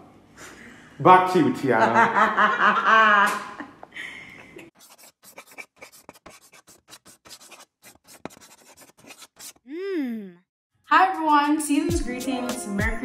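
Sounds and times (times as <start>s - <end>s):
pen scratching on paper: 4.7s - 9.7s.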